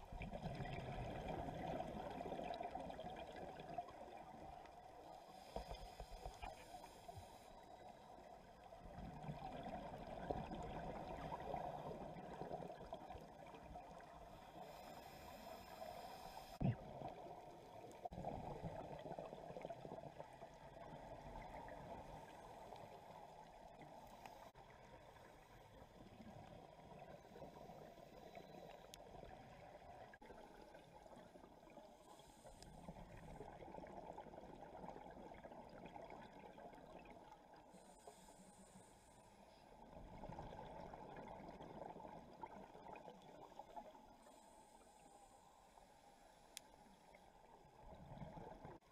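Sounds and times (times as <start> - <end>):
underwater regulator breathing: 14.4 - 16.7.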